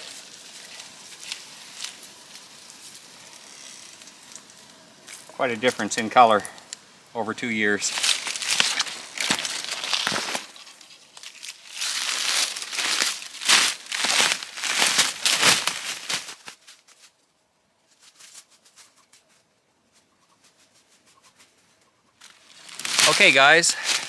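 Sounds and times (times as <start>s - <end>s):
footsteps crunching dry leaves: 0.0s - 6.6s, 7.5s - 17.1s, 22.2s - 24.0s
plastic tape crinkling: 0.0s - 6.8s, 7.8s - 17.2s, 22.2s - 24.0s
brushing past twigs: 0.0s - 24.0s.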